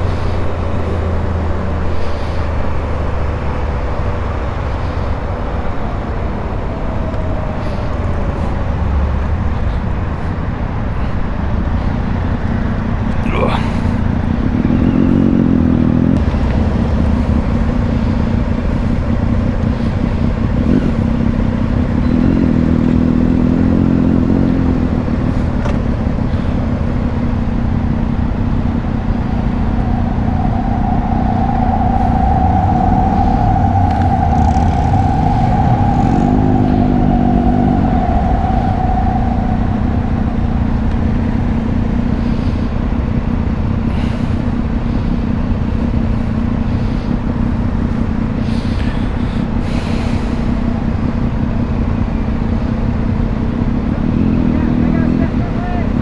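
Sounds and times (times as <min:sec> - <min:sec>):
wind rumble: 0:00.0 - 0:56.0
steady high whine: 0:01.9 - 0:56.0
motorcycle engine running: 0:12.2 - 0:31.2, 0:32.7 - 0:56.0.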